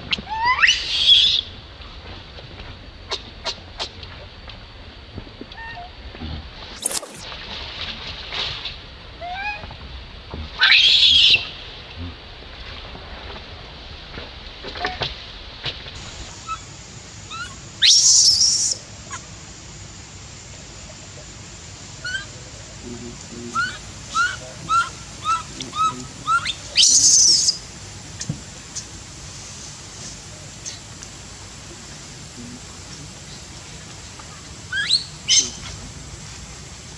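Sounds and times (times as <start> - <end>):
infant monkey shrieking: 10.6 - 11.4, 17.3 - 18.8, 22.0 - 22.3, 23.5 - 27.6, 34.7 - 35.7.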